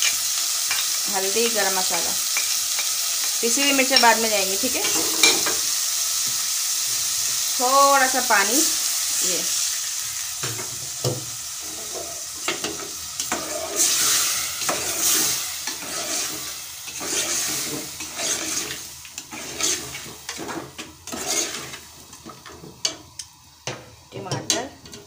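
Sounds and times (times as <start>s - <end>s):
meat sizzling in hot oil: 0.0s - 25.0s
steel spoon scraping pot: 3.9s - 5.6s, 11.8s - 21.9s.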